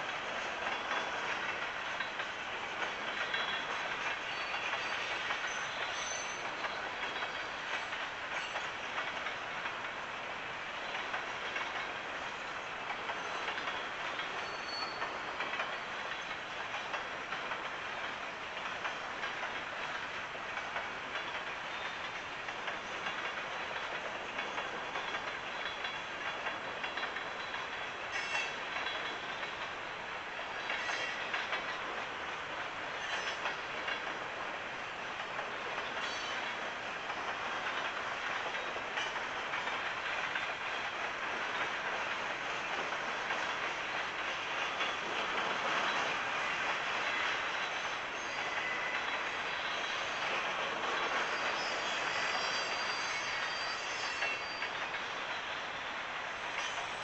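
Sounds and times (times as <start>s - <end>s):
freight cars rolling on rails: 0.0s - 57.0s
wheel squeals: 14.4s - 15.2s, 51.2s - 54.9s.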